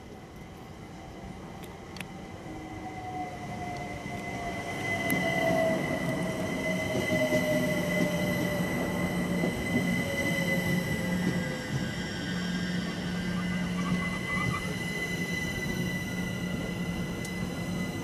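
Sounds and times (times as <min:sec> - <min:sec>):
electric train whine: 0:00.0 - 0:18.0
train rolling rumble: 0:00.0 - 0:18.0.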